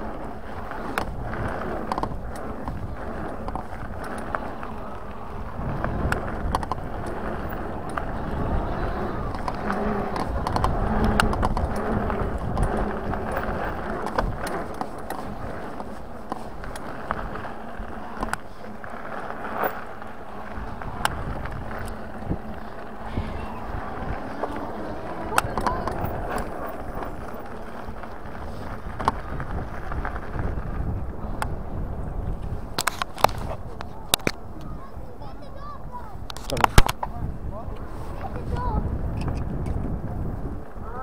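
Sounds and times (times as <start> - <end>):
tyre rumble on gravel: 0.0 - 31.2
bike clicks and rattles: 0.0 - 41.0.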